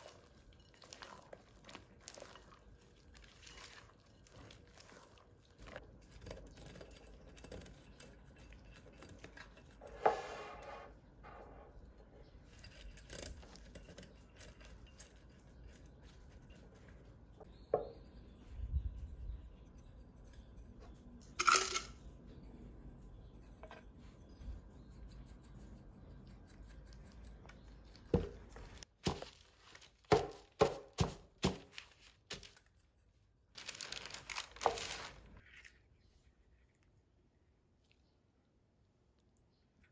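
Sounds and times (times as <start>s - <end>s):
gritty sugar rustle: 0.0s - 11.2s, 12.0s - 21.6s, 22.3s - 36.3s
pastry brush rubbing metal pan: 0.0s - 11.8s.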